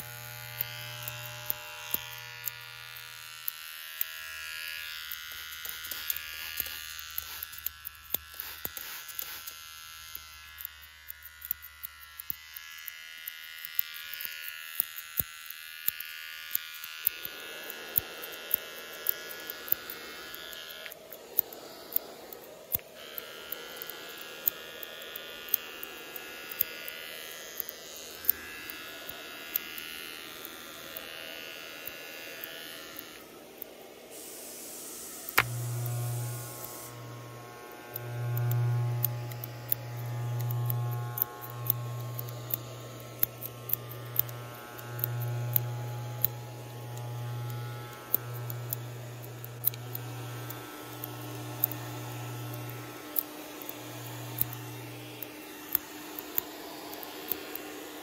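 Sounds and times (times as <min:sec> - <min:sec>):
low buzz: 0:00.0 - 0:12.9, 0:16.6 - 0:58.0
electric trimmer buzzing: 0:00.0 - 0:58.0
sharp clicks: 0:00.0 - 0:58.0
low hum: 0:34.2 - 0:58.0.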